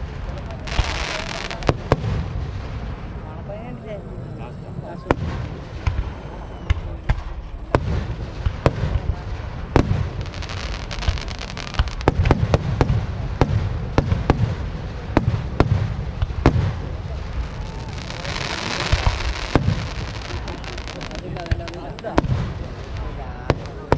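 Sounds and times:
crackle of sparks: 0:00.0 - 0:03.3, 0:05.1 - 0:23.9
firework shells bursting: 0:08.0 - 0:14.6, 0:15.2 - 0:23.9.

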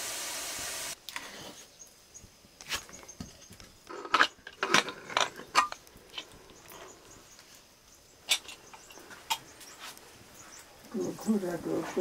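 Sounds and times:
kitchen utensils clinking: 0:03.9 - 0:05.8.

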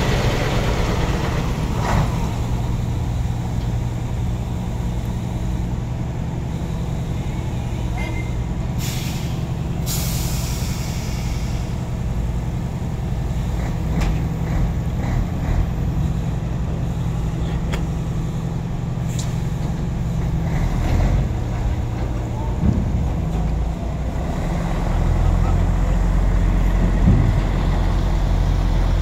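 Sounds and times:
heavy diesel engines idling: 0:00.0 - 0:29.0
compressed air hissing: 0:08.8 - 0:11.8.

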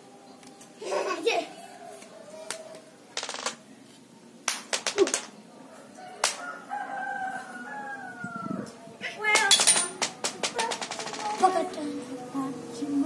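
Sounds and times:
rooster crowing: 0:05.6 - 0:08.9.

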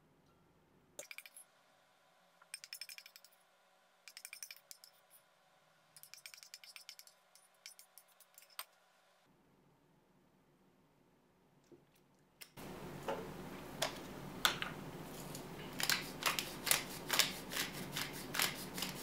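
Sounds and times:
metal spoon clinking on bowls: 0:02.6 - 0:03.3, 0:04.1 - 0:05.2.

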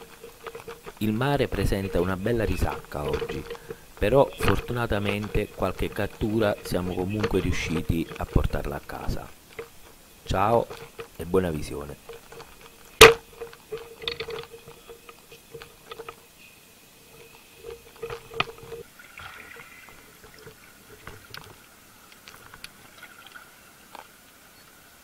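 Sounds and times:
speargun clicks and knocks: 0:00.0 - 0:16.2, 0:17.1 - 0:18.8
underwater sound: 0:00.0 - 0:24.6
water sloshing and splashing: 0:00.0 - 0:25.0.

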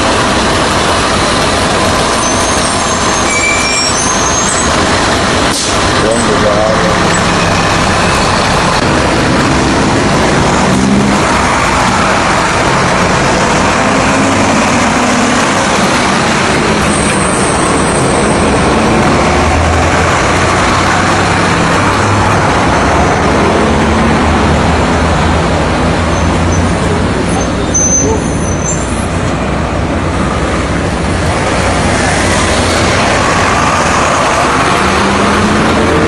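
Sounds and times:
bus diesel engines running: 0:00.0 - 0:36.0
high squeal: 0:02.1 - 0:04.8, 0:16.8 - 0:18.5, 0:26.1 - 0:29.1
cars and motorcycles passing: 0:04.7 - 0:27.3, 0:29.0 - 0:36.0.

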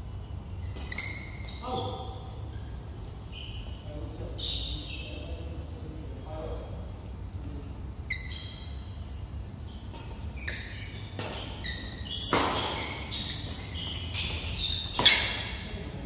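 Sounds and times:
shoes squeaking on court floor: 0:00.2 - 0:05.6, 0:08.0 - 0:16.0
racket striking shuttlecock: 0:12.2 - 0:13.7.

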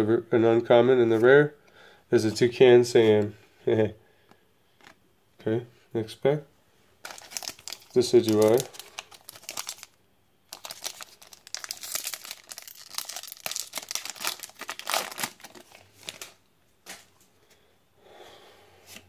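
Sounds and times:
foil wrapper crinkling and tearing: 0:07.0 - 0:16.4.

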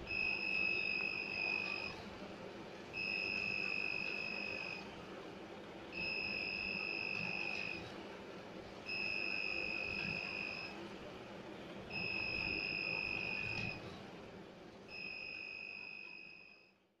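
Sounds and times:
high-pitched buzzer beeps: 0:00.1 - 0:01.9, 0:03.0 - 0:04.8, 0:06.0 - 0:07.8, 0:08.9 - 0:10.8, 0:11.9 - 0:13.8, 0:14.9 - 0:16.6.

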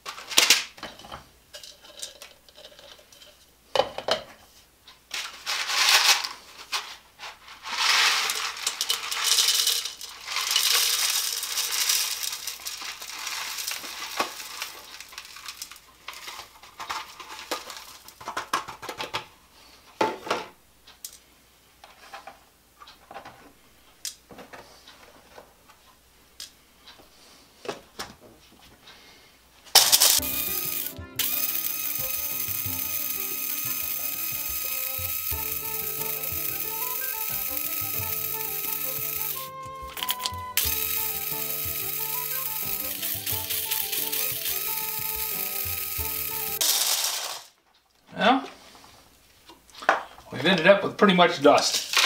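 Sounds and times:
plastic pieces rattling: 0:00.0 - 0:03.4, 0:05.1 - 0:19.3, 0:29.8 - 0:47.6, 0:51.8 - 0:52.0.

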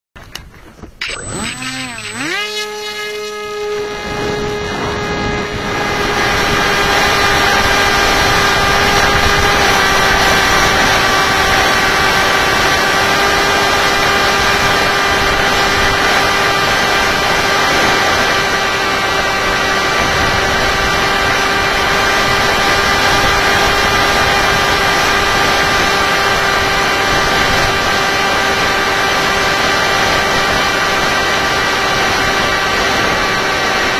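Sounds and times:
electric motor propeller whine: 0:01.0 - 0:33.9
rush of air noise: 0:03.8 - 0:13.0.

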